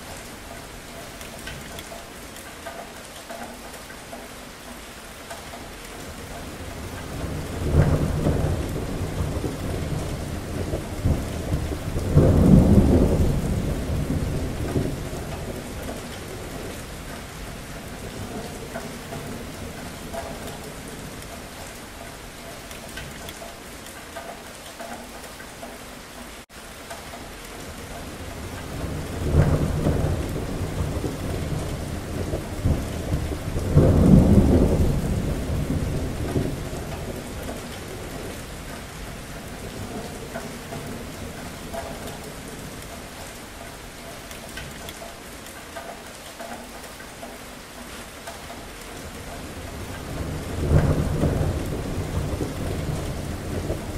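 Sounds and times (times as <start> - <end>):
steady rain: 0.0 - 53.9
thunder rumbling: 6.7 - 21.2, 27.7 - 42.9, 49.0 - 53.9.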